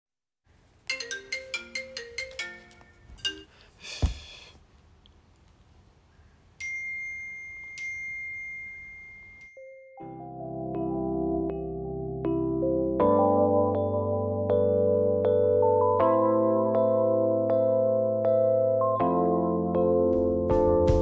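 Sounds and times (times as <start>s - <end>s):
marimba-like ringtone melody: 0.9s - 3.7s, 6.6s - 11.5s
soft piano music: 9.9s - 21.0s.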